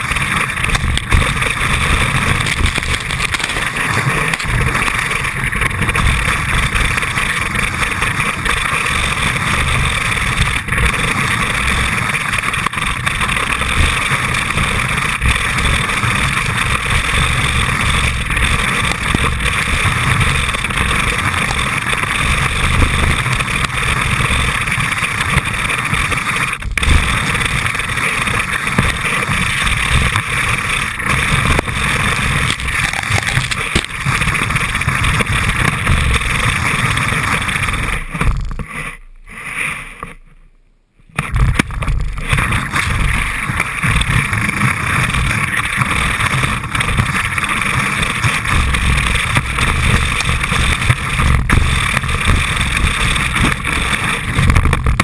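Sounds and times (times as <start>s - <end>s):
low rumble: 0.0s - 39.3s
skis rushing through snow: 0.0s - 40.2s, 41.1s - 55.0s.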